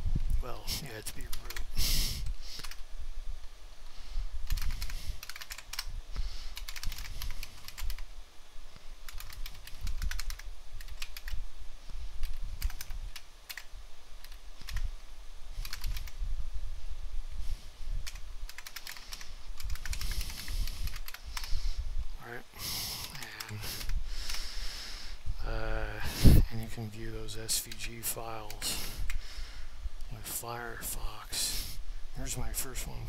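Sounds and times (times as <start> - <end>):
computer keyboard typing: 2.6 - 2.8, 4.4 - 5.9, 6.5 - 8.1, 9.1 - 11.4, 12.2 - 14.9, 15.6 - 16.2, 18.0 - 21.5.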